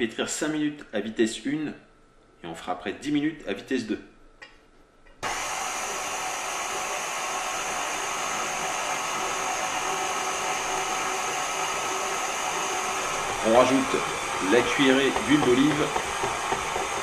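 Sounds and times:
stand mixer motor whine: 0:05.2 - 0:17.0.

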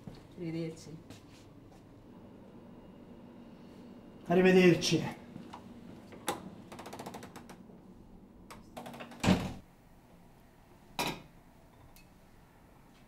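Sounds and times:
door shutting thud: 0:09.2 - 0:09.6.

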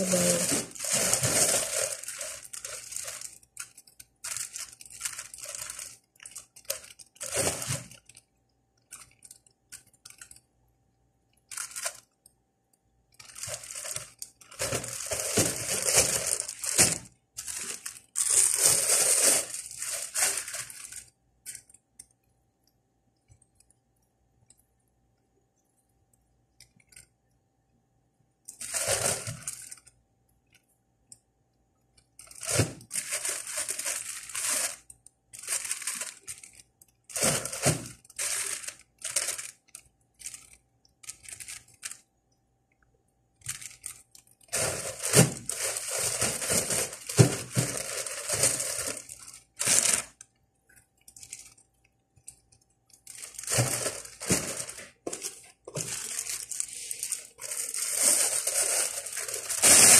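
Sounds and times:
plastic bags rustling: 0:00.0 - 0:08.2, 0:13.2 - 0:21.6, 0:28.6 - 0:29.9, 0:32.2 - 0:42.0, 0:43.5 - 0:50.2, 0:53.0 - 0:59.9.

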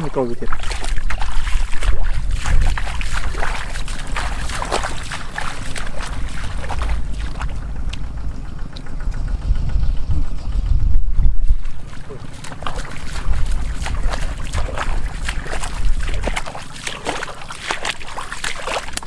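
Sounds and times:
hands sloshing in water: 0:00.0 - 0:07.6, 0:11.5 - 0:19.0
feet splashing through muddy water: 0:00.0 - 0:08.1, 0:11.4 - 0:19.0
low rumble: 0:00.0 - 0:19.0.

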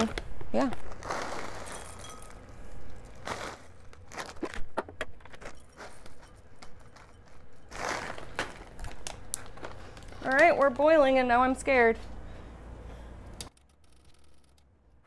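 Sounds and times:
foil bag crinkling: 0:00.6 - 0:10.9.

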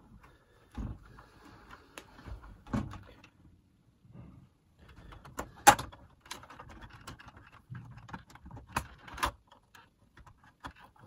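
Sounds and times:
plastic clicks and rattles: 0:04.9 - 0:11.0.

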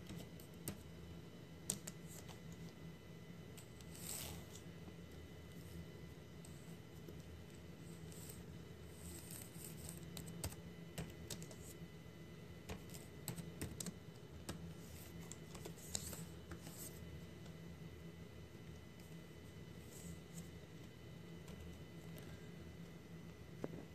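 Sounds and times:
slow typing on keyboard: 0:09.0 - 0:11.8, 0:12.6 - 0:16.9.

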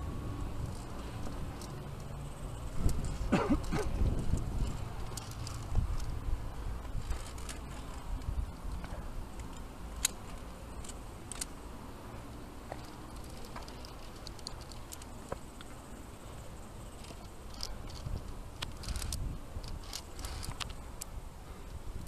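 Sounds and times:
wind rumbling on microphone: 0:00.0 - 0:10.4, 0:16.8 - 0:22.0
carabiners clinking on steel cable: 0:00.4 - 0:11.7, 0:12.6 - 0:21.1.

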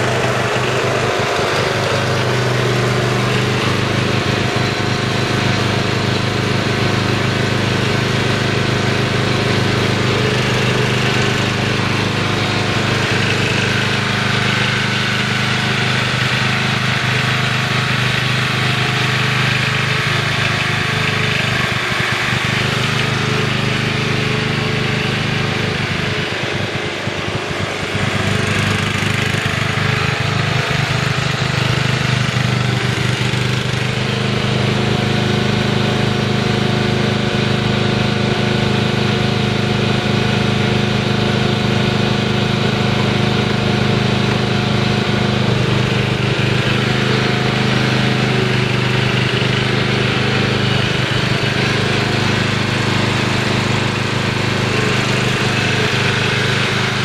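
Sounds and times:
riding lawn mower engine running: 0:00.0 - 0:57.0.

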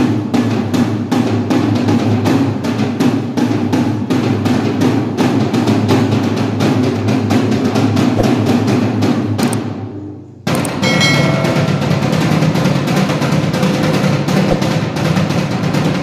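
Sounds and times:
fast drum hits with sticks: 0:00.0 - 0:09.5, 0:10.6 - 0:16.0
low drum ring: 0:10.6 - 0:16.0.

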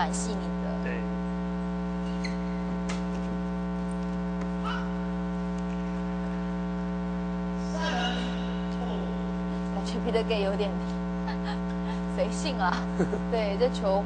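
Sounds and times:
electrical mains hum: 0:00.0 - 0:14.0
faint clicks and squeaks: 0:02.0 - 0:04.2.

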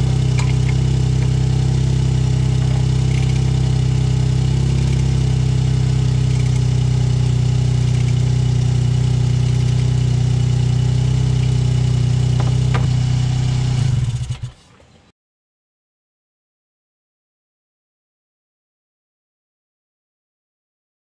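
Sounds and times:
car engine idling: 0:00.0 - 0:14.6.

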